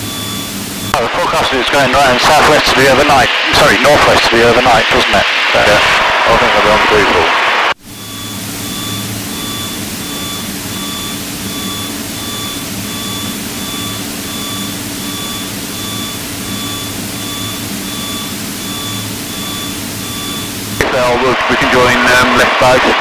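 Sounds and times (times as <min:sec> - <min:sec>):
short electronic beeps: 0:00.0 - 0:01.0, 0:07.9 - 0:21.1
aircraft engine and propeller drone: 0:00.0 - 0:05.9, 0:07.9 - 0:23.0.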